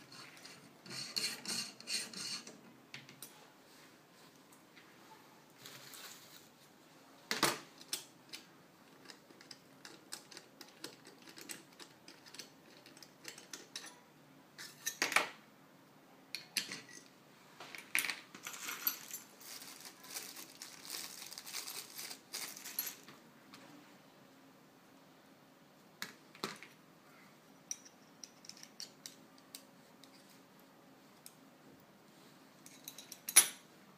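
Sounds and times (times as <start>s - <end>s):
plastic bag crinkling: 5.6s - 6.6s, 18.5s - 23.0s
small metal parts clinking: 17.8s - 23.1s, 32.6s - 33.6s.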